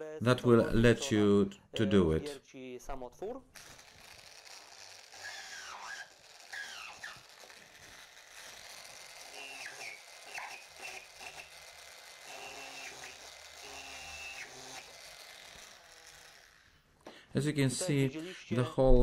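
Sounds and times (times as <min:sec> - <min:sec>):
small drill boring plastic: 0:03.6 - 0:16.9.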